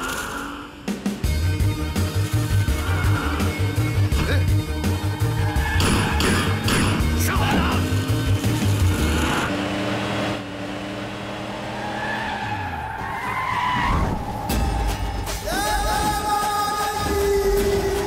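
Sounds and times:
background music with percussion: 0.9 - 9.1, 14.1 - 18.0
car engine running: 2.7 - 13.5.

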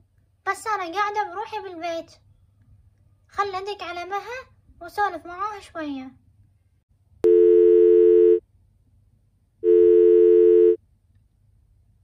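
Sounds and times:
telephone ringback tone: 7.3 - 8.4, 9.6 - 10.8.

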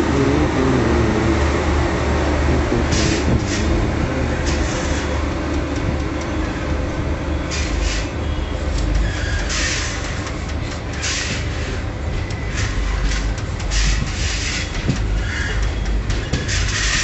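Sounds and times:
train wheels rumbling on rail: 0.0 - 17.0.

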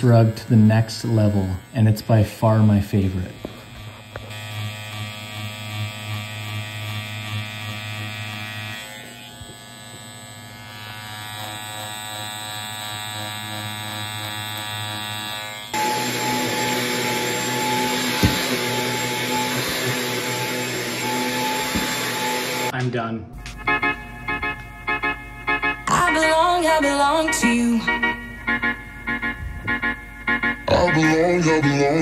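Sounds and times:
electric clipper buzzing: 0.0 - 22.8
stick vacuum running: 0.0 - 22.8.

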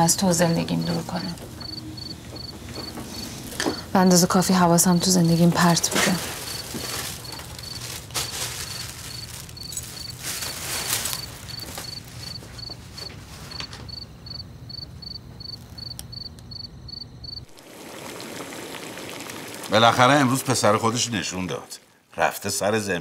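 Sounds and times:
cricket chirping: 0.0 - 17.5
rustling handling noise: 0.2 - 14.0.

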